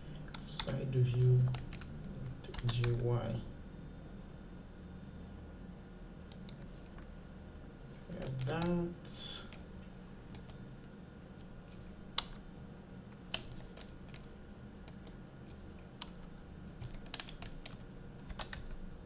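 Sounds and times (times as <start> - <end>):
low steady hum: 0.0 - 19.0
computer keyboard typing: 0.3 - 1.9, 2.5 - 3.0, 8.2 - 8.8, 16.0 - 18.8.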